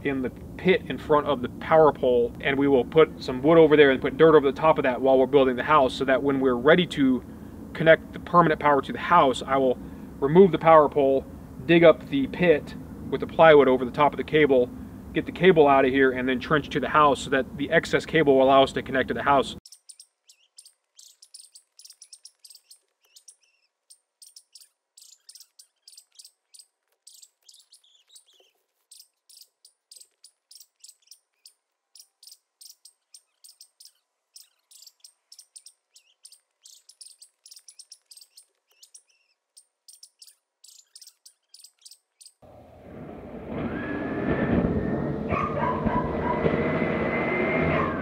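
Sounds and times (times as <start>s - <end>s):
faint bird chirping: 19.3s - 42.4s.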